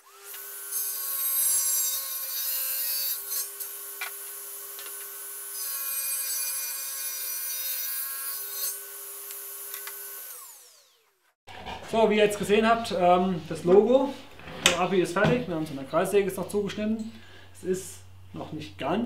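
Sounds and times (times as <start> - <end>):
table saw cutting wood: 0.0 - 11.8.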